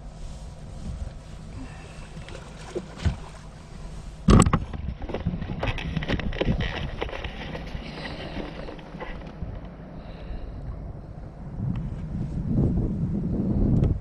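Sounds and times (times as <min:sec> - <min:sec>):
steady low rumble: 0:00.0 - 0:14.0
knocks and rattles on boat: 0:01.9 - 0:09.8.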